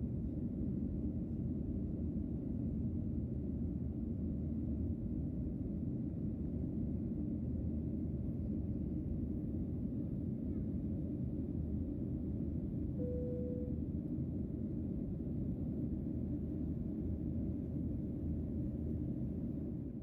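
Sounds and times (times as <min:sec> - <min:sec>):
jet airliner cabin rumble: 0:00.0 - 0:20.0.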